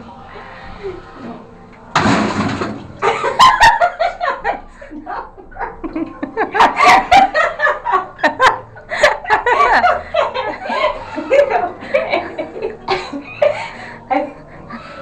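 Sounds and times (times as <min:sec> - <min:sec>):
woman laughing: 0:03.0 - 0:14.5.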